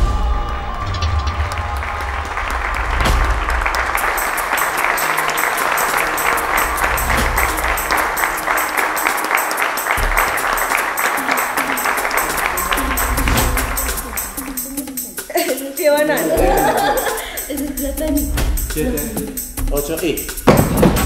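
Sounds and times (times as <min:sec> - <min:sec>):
audience applauding: 0:00.0 - 0:15.0.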